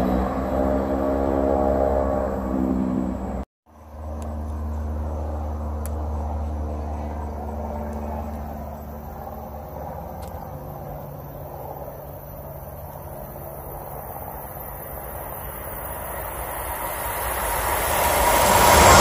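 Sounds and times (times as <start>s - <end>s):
low engine rumble: 0.0s - 19.0s
crickets chirping: 8.2s - 19.0s.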